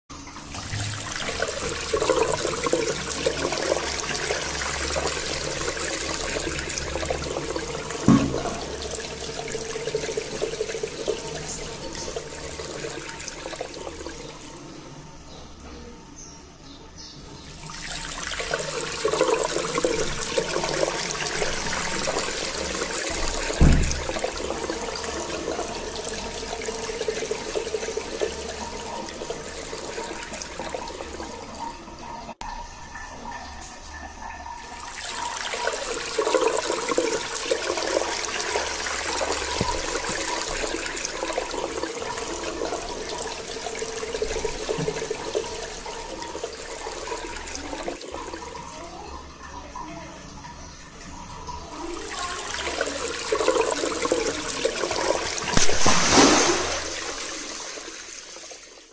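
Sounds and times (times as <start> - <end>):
water filling a balloon: 0.3 - 14.8, 17.6 - 31.7, 34.6 - 49.1, 51.5 - 58.9
brief thump: 8.1 - 8.6, 23.6 - 24.1, 55.6 - 57.1.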